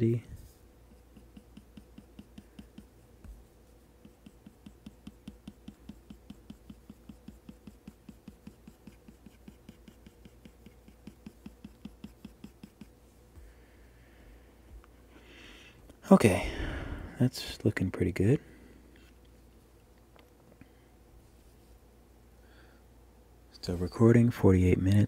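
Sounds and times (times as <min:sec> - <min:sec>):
stylus tapping on screen: 0:00.9 - 0:13.6.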